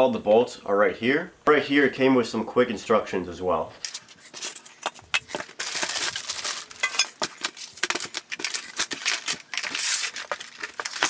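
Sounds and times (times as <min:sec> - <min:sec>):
cardboard rustling and scraping: 0:03.8 - 0:11.0
plastic wrapping crinkling: 0:03.8 - 0:11.0.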